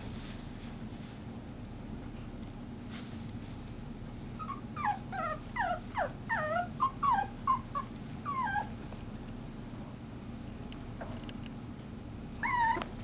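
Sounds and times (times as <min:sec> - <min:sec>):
puppies whimpering and yelping: 0:04.4 - 0:08.8, 0:12.4 - 0:13.0.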